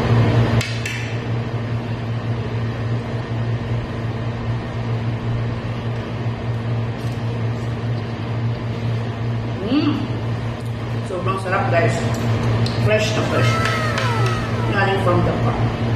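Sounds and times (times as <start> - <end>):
low hum: 13.4 - 15.9.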